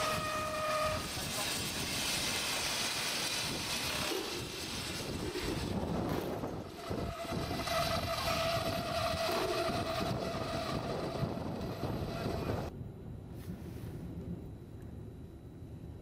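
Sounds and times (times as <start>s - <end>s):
rushing hiss of water and steam: 0.0s - 9.1s
steady whistling tone: 3.4s - 12.7s.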